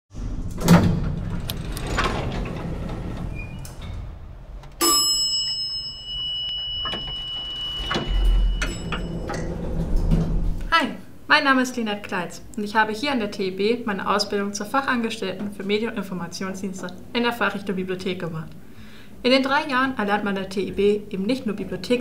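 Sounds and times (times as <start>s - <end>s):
elevator whoosh: 0.1s - 4.8s, 6.6s - 10.7s
steady low hum: 0.1s - 21.6s
elevator chime: 4.7s - 10.6s.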